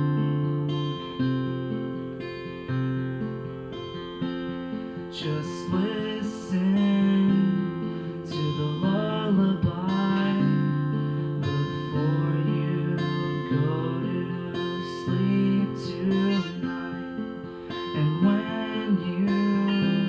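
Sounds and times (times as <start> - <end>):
acoustic guitar strumming: 0.0 - 20.0
man singing: 5.0 - 20.0.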